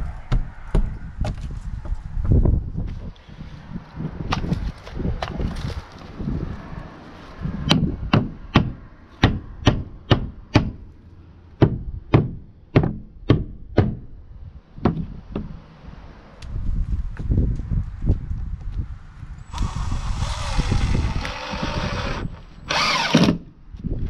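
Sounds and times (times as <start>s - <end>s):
hammer driving nails into wood: 22.7s - 23.4s.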